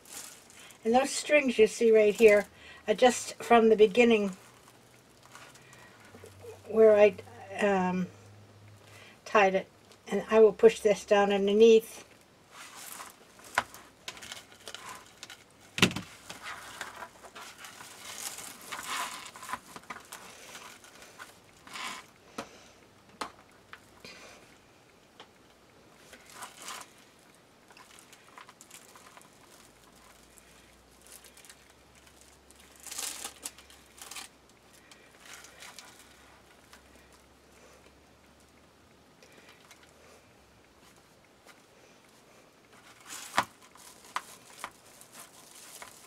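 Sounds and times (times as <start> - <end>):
plastic mesh rustling and crinkling: 0.0 - 7.2, 11.7 - 22.2, 25.9 - 38.6, 40.7 - 46.0.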